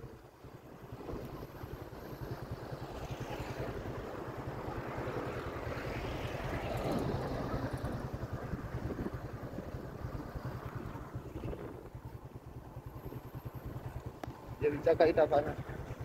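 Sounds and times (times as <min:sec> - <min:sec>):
vehicle engine and road noise: 0:00.0 - 0:16.0
wind buffeting microphone: 0:00.0 - 0:16.0.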